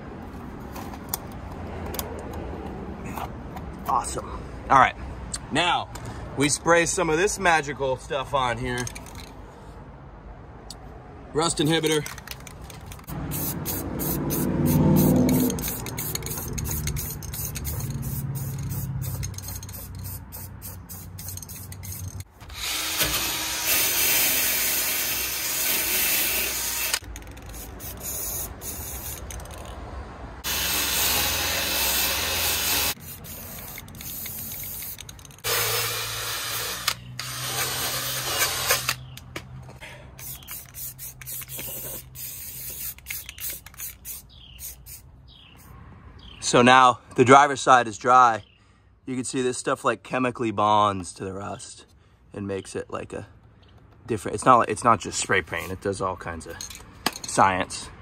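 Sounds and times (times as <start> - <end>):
aerosol can spraying: 13.3 - 22.1, 23.7 - 29.3, 30.4 - 36.8, 40.2 - 45.0
drill with wire wheel scrubbing: 22.4 - 27.0, 30.4 - 33.0, 35.4 - 39.0.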